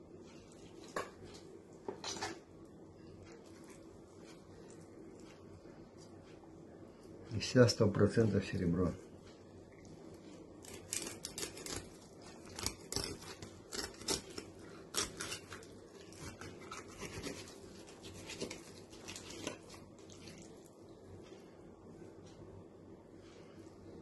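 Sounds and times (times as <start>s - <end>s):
knife scraping fish: 10.6s - 20.5s.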